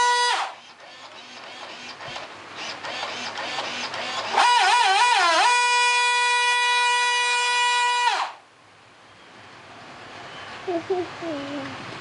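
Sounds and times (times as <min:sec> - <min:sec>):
electric motor whining: 0:00.0 - 0:05.8
faint rough whirring: 0:00.0 - 0:12.0.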